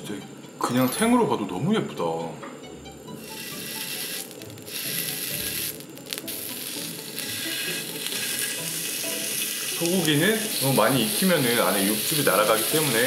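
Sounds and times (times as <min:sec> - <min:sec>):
meat sizzling on a hot griddle: 0:03.2 - 0:13.0.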